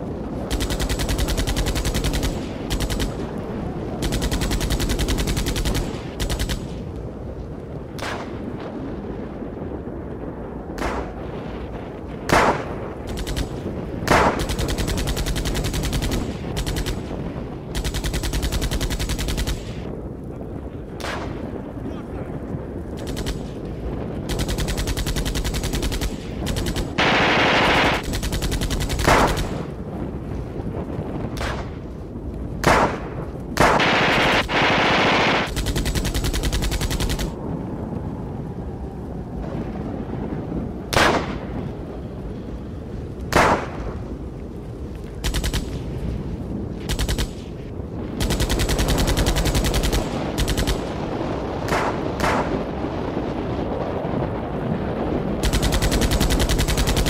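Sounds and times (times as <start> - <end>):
rifle shots: 0.4 - 6.9, 8.0 - 8.6, 10.8 - 11.3, 12.3 - 19.9, 23.0 - 23.6, 24.3 - 29.7, 31.3 - 31.8, 32.6 - 37.4, 40.9 - 41.5, 43.3 - 44.0, 45.2 - 45.9, 46.8 - 47.6, 48.2 - 52.7, 55.4 - 57.0
machine-gun bursts: 0.5 - 3.3, 4.0 - 6.8, 17.7 - 19.8, 23.0 - 23.6, 24.3 - 29.7, 33.6 - 37.4, 45.2 - 45.8, 46.9 - 47.5, 48.2 - 50.9, 55.4 - 57.0.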